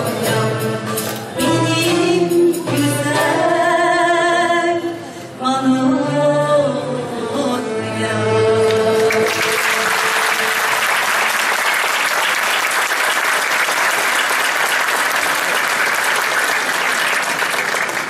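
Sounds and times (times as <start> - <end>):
woman singing with choir: 0.0 - 9.9
audience applause: 9.0 - 18.0.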